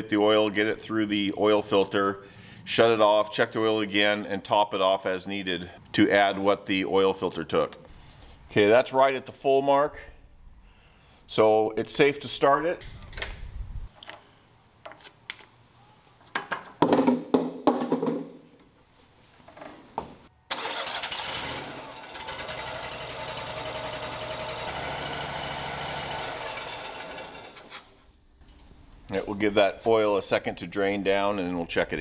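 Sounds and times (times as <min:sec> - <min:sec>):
clicks and knocks of handling: 0:14.8 - 0:16.8
gas engine running: 0:20.5 - 0:27.7
engine winding down: 0:20.5 - 0:27.8.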